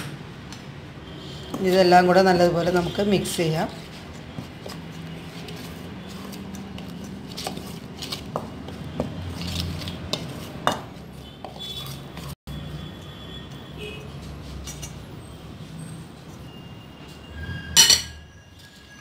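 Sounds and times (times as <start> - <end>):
spoon scraping mixing bowl: 1.3 - 12.4.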